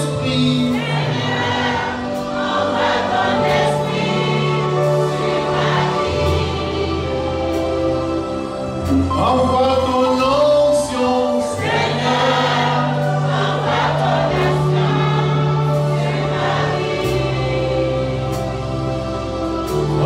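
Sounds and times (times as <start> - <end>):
man singing into a microphone: 0.0 - 1.2, 9.0 - 11.6
choir singing: 0.0 - 20.0
held bass notes and chords: 0.0 - 20.0.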